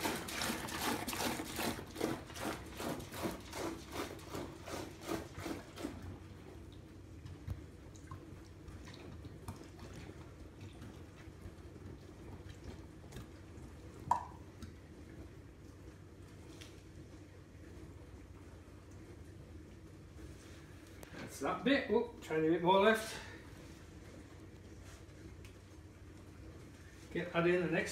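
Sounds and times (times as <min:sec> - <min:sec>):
liquid pouring into bucket: 0:00.0 - 0:06.8.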